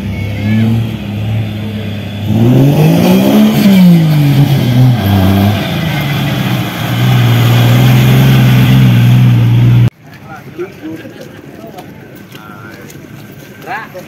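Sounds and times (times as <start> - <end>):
buggy engine revving: 0.0 - 9.9.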